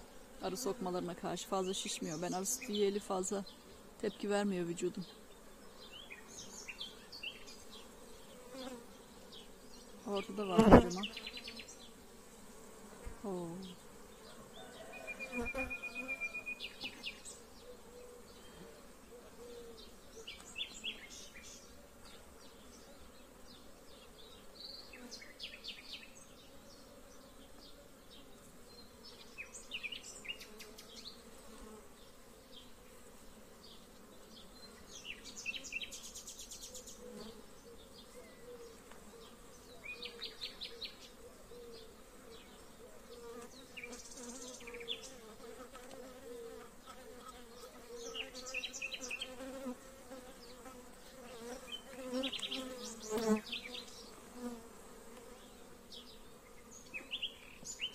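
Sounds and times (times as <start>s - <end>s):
honeybees buzzing: 0.0s - 57.9s.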